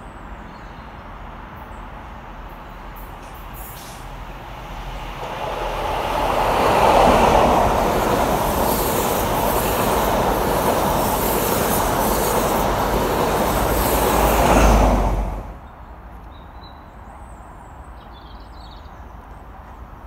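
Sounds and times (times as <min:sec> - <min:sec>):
train passing at speed: 0:00.0 - 0:16.2
train wheels rumbling on rails: 0:02.4 - 0:15.6.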